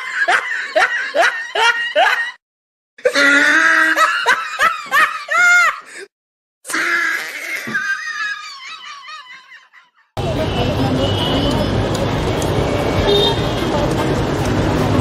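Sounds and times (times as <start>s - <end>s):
laughter in quick bursts: 7.6s - 10.1s.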